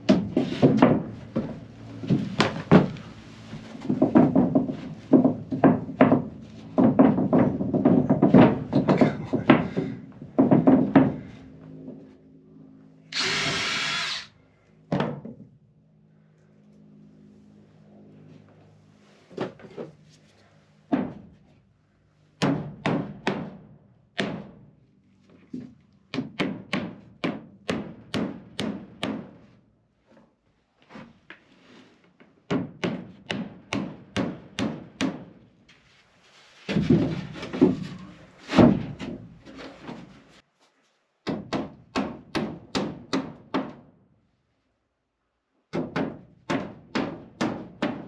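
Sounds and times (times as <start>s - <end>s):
hammer driving nails into wood: 26.1s - 29.4s, 32.5s - 35.3s, 41.2s - 43.9s, 45.7s - 48.0s.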